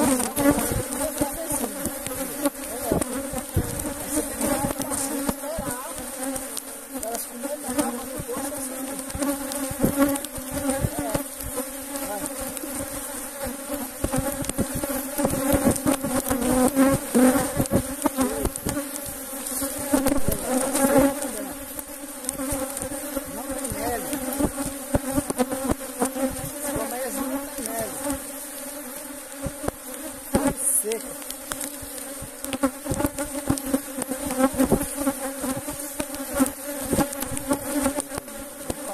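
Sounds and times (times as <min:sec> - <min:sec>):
knocks of hive lid: 0:00.0 - 0:28.2, 0:29.3 - 0:30.6, 0:31.2 - 0:38.9
bees buzzing: 0:00.0 - 0:38.9.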